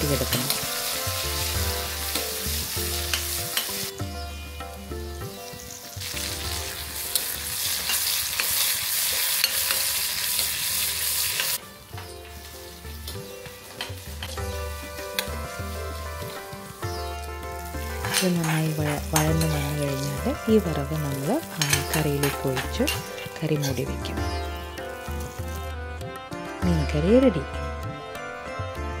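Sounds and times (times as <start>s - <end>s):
onions sizzling in oil: 0.0s - 25.7s
metal ladle clicking on pan: 7.9s - 10.5s, 21.6s - 23.1s.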